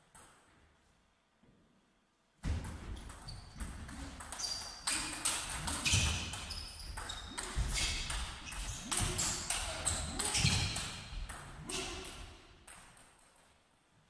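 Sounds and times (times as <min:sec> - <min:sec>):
shoes squeaking on floor: 0:04.3 - 0:12.0.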